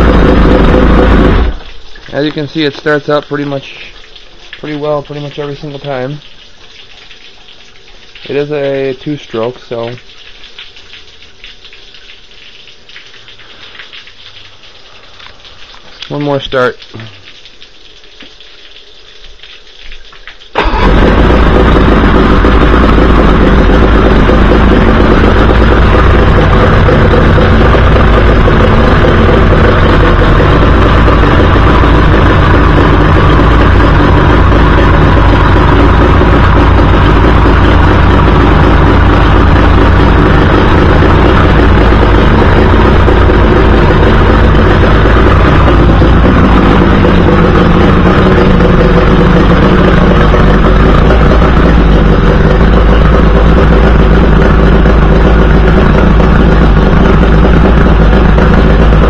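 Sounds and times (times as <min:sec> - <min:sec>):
outboard motor running: 0:00.0 - 0:03.9, 0:20.5 - 0:59.0.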